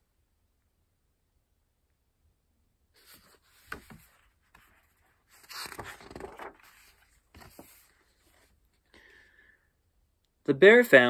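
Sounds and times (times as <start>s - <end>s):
paper rustling: 3.0s - 8.8s.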